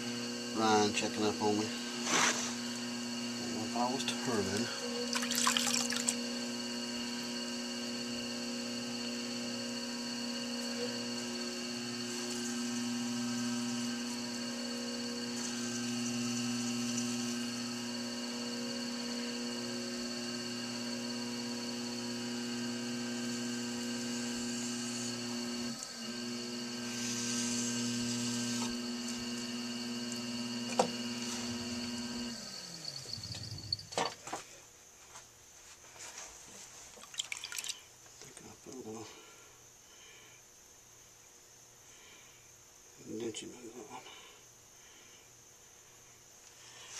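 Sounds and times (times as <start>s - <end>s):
potter's wheel motor humming: 0.0s - 34.1s
scraping on spinning clay: 2.0s - 2.8s.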